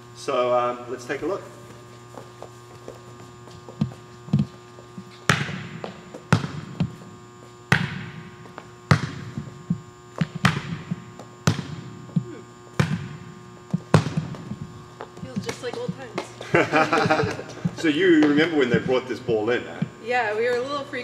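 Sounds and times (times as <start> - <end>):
electrical hum: 0.0 - 21.0
volleyball slaps echoing: 5.2 - 7.1, 7.7 - 18.5.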